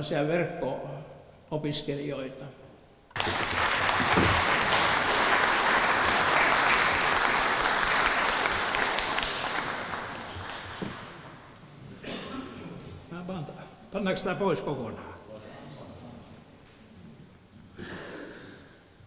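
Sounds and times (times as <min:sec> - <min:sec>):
audience applauding: 0:03.1 - 0:11.6.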